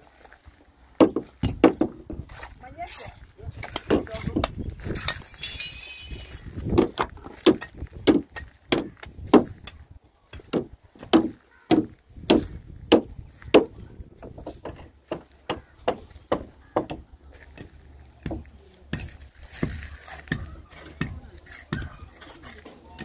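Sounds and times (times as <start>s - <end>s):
hammer chipping stone: 6.7s - 9.8s.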